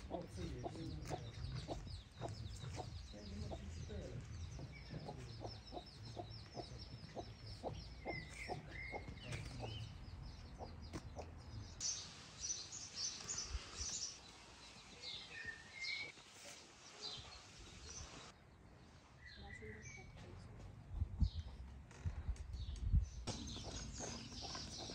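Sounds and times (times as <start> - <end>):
chickens clucking: 0.0 - 11.5, 23.3 - 24.9
small birds chirping: 0.0 - 24.9.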